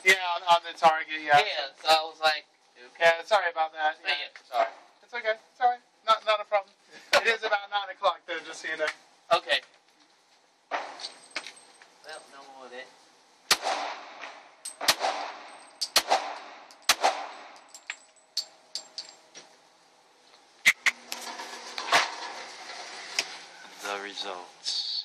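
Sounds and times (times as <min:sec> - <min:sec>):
handgun shots echoing indoors: 0:14.8 - 0:17.5.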